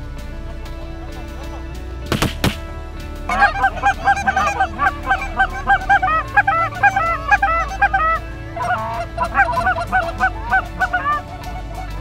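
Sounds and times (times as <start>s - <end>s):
geese honking: 3.3s - 12.0s.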